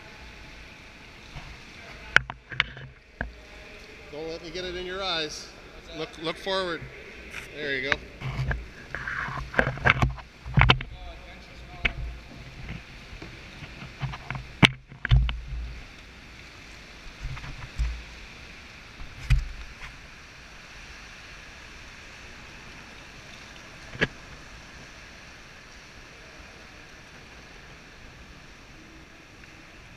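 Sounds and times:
steady hiss of water: 0.0 - 29.9
paddles knocking and splashing: 1.2 - 4.7, 6.3 - 20.2, 22.0 - 27.8.

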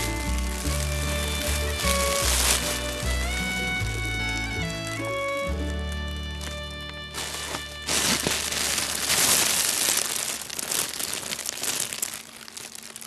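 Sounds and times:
music track: 0.0 - 9.1
nylon tunnel crinkling: 0.0 - 13.0.

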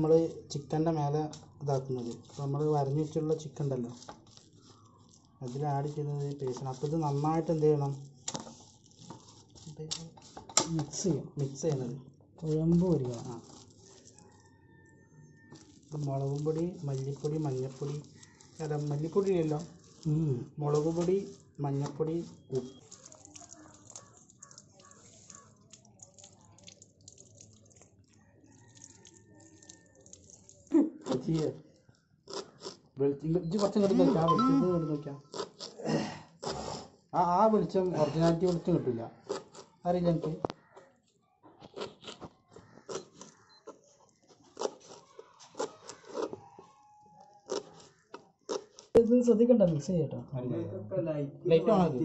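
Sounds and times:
small water drips: 20.8 - 32.2
tap water splashing on leaves: 22.8 - 28.0, 28.7 - 31.4.

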